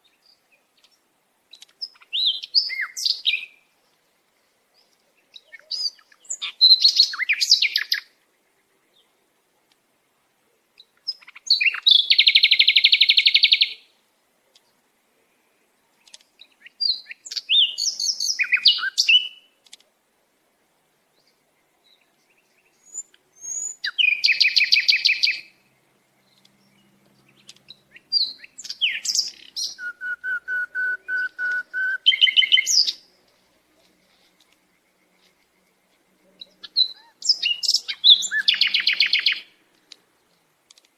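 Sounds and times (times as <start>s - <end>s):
songbird trilling: 1.5s - 3.6s, 5.3s - 8.0s, 16.0s - 19.5s, 22.3s - 25.5s, 26.2s - 33.1s, 36.4s - 39.5s.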